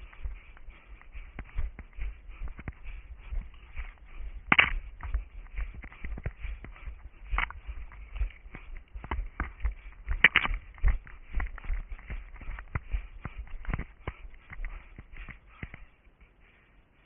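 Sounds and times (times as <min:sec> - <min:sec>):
running footsteps on twigs: 0:00.0 - 0:17.0
twig cracking: 0:04.5 - 0:04.8, 0:10.2 - 0:10.7.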